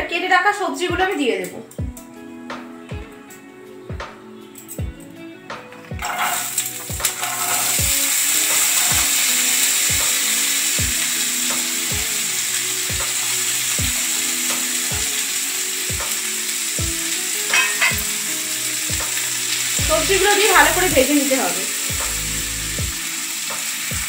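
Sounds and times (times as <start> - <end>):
vegetables sizzling in hot fat: 6.0 - 24.0.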